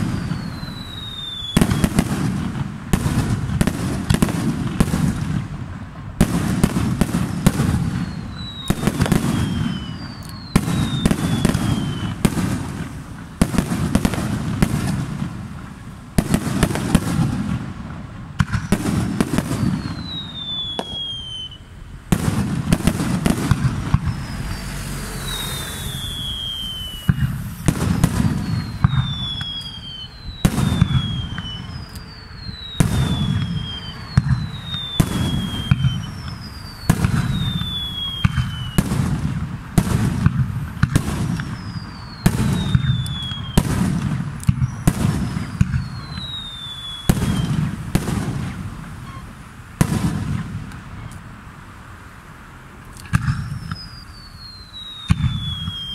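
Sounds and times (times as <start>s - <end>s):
falling firework whistles: 0.0s - 51.3s, 52.9s - 55.9s
fireworks bangs: 0.0s - 51.3s, 52.8s - 55.9s
low booming: 22.1s - 29.5s.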